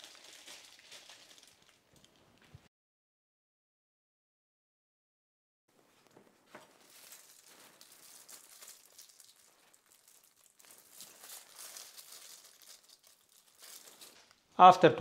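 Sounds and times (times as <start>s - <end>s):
plastic bags crinkling: 0.0s - 2.7s, 5.8s - 14.5s.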